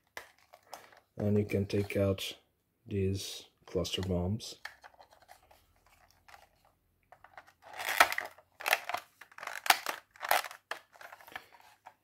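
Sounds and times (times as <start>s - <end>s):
plastic toy parts rattling: 4.6s - 12.0s.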